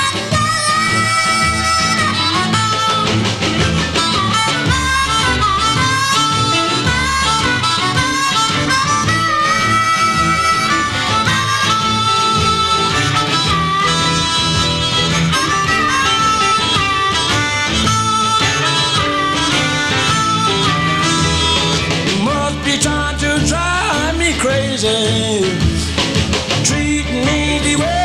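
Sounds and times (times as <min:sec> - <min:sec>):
band backing: 0:00.0 - 0:28.0
blues harmonica solo: 0:00.0 - 0:28.0.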